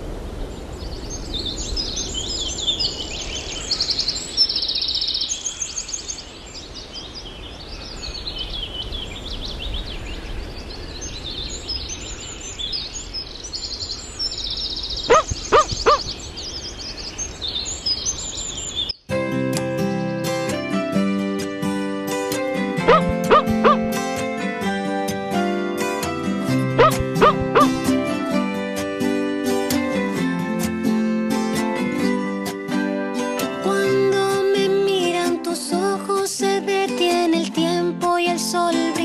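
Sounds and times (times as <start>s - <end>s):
small birds chirping: 0.4s - 19.1s, 22.9s - 23.9s, 26.8s - 27.8s
loud short bird calls: 15.1s - 16.2s.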